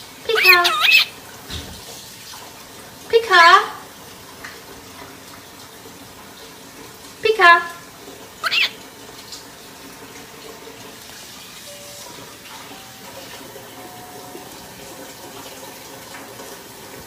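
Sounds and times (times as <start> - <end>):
water running from a tap: 0.0 - 17.0
faint short pitched notes: 11.7 - 14.8.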